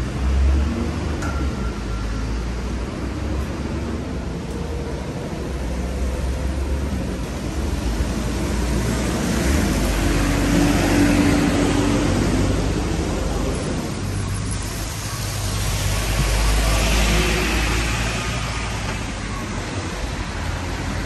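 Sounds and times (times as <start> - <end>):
traffic on wet road: 0.0 - 21.0
bus engine passing: 1.8 - 21.0
tyres hissing on wet tarmac: 7.3 - 21.0.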